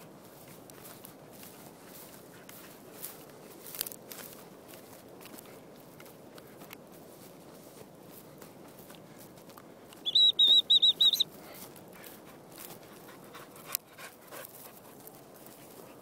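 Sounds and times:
footsteps crunching frosty grass: 0:00.0 - 0:16.0
high piping whistle notes: 0:10.0 - 0:11.3.

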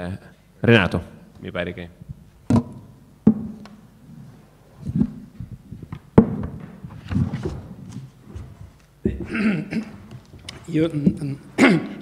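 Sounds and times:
microphone handling thumps: 0:04.8 - 0:11.3.

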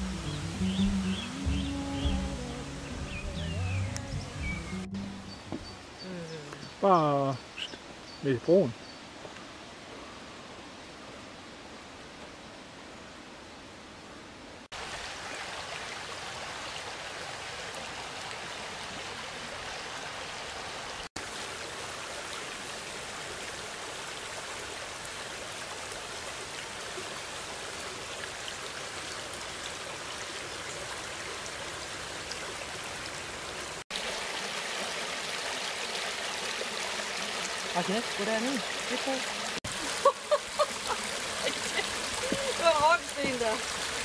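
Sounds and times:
brook flowing over stones: 0:14.6 - 0:44.0.

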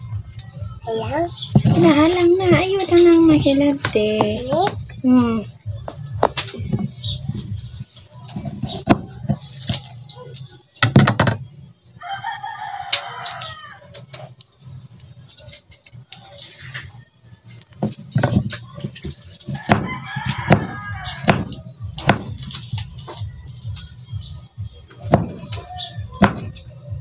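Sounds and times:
rooster crowing: 0:12.0 - 0:14.0, 0:19.5 - 0:21.5.

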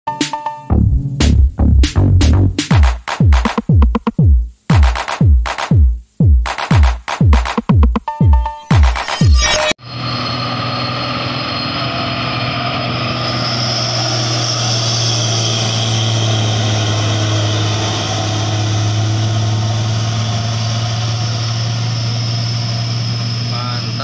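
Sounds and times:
diesel truck engine pulling hard: 0:09.9 - 0:24.0.

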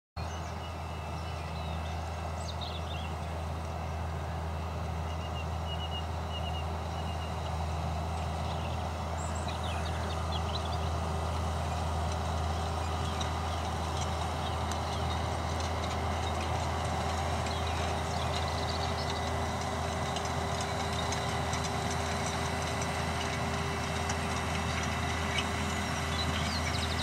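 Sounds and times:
tractor diesel engine running: 0:00.2 - 0:27.0
bird chirps: 0:05.0 - 0:07.5, 0:08.2 - 0:10.9, 0:25.2 - 0:27.0.

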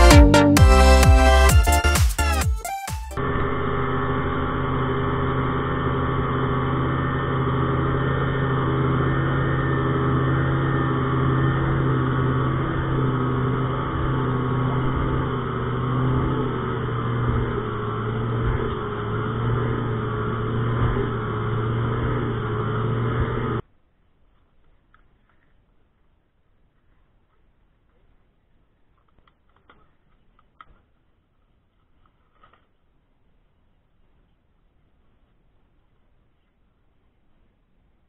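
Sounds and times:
outboard motor drone: 0:03.2 - 0:23.6.

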